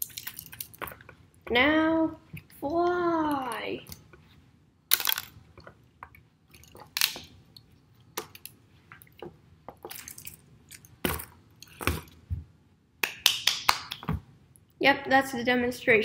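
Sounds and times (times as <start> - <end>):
plastic toy parts rattling: 0.0 - 1.0, 4.9 - 5.4.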